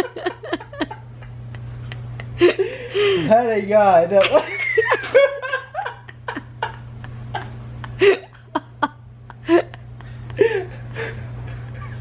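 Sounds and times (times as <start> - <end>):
steady low hum: 0.0 - 12.0
person laughing breathlessly: 0.1 - 3.3, 5.8 - 12.0.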